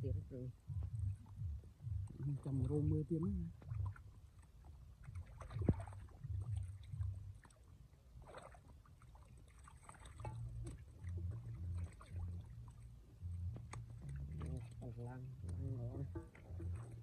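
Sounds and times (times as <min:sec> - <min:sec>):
hands splashing in water: 0:05.1 - 0:07.6.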